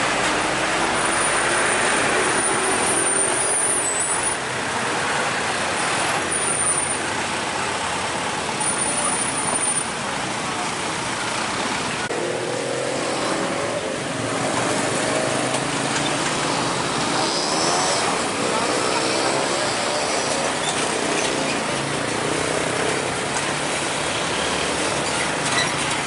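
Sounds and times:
road traffic noise: 0.0s - 26.0s
vehicle engine revving: 12.1s - 26.0s.

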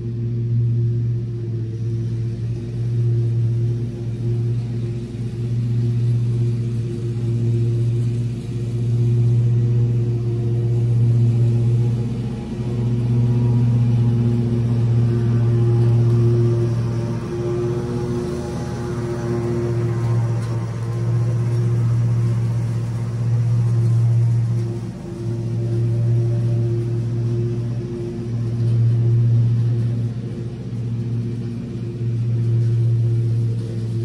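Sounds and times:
lawn mower engine running: 0.0s - 34.0s.

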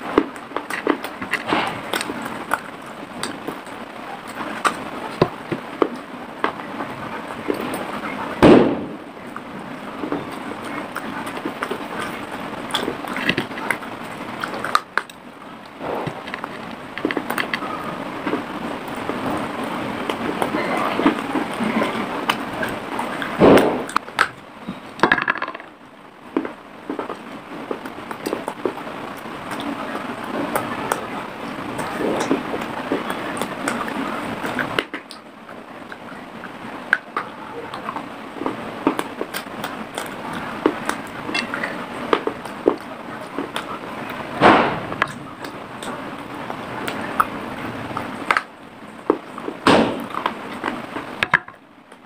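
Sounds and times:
clay pot being chewed: 0.0s - 8.4s, 9.2s - 52.0s.

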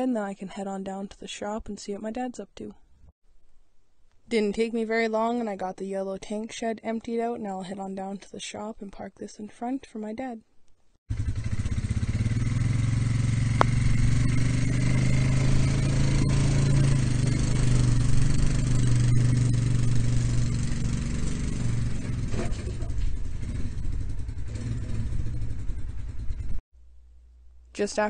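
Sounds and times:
quad engine running: 11.1s - 26.6s.

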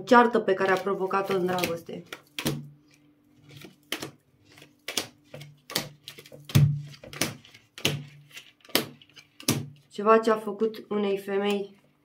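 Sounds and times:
cards slapping while shuffled: 0.7s - 9.8s.

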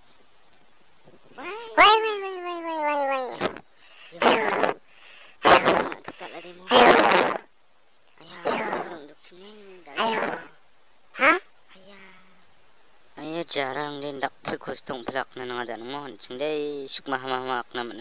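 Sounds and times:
cricket chirring: 0.0s - 18.0s
cartoon soundtrack: 1.4s - 3.6s
short voiced cries: 1.4s - 4.8s, 5.4s - 7.4s
rapid stuttering voice sounds: 1.4s - 7.4s, 8.2s - 10.5s.

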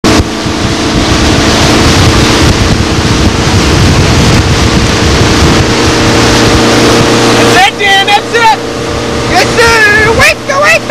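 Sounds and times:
motorboat engine running: 0.0s - 10.9s
water rushing from wake: 0.0s - 10.9s
wind buffeting microphone: 0.0s - 10.9s.

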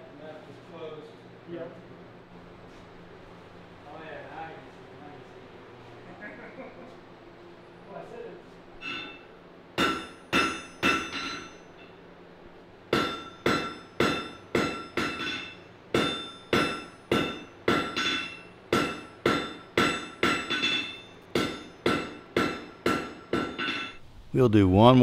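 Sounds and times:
hammer ringing on anvil: 8.8s - 12.0s, 12.9s - 24.0s.

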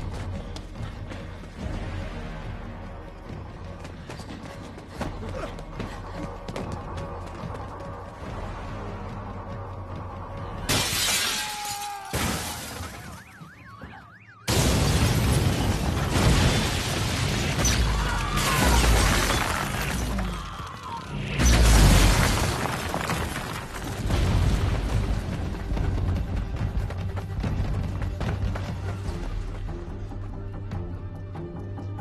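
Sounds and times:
background music: 0.0s - 13.2s, 15.7s - 32.0s
fire and destruction noise: 0.0s - 29.8s
crashes with glass shattering: 10.7s - 13.2s, 14.5s - 20.3s.

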